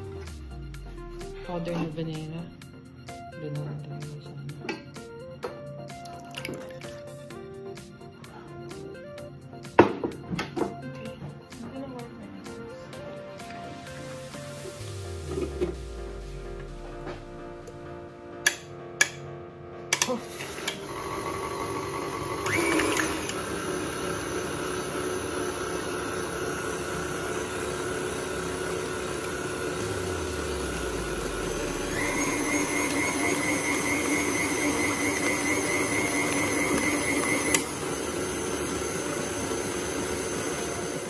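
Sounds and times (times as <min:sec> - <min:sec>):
stand mixer motor whine: 0:20.3 - 0:41.0.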